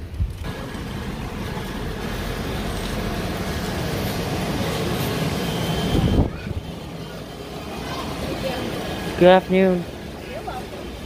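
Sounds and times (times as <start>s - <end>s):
shopping cart rolling and rattling: 0.1s - 6.2s.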